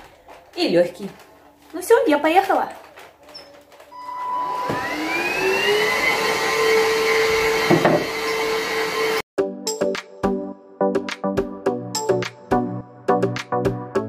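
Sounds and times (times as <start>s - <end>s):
vacuum cleaner motor whining: 3.9s - 9.2s
music: 9.4s - 14.0s.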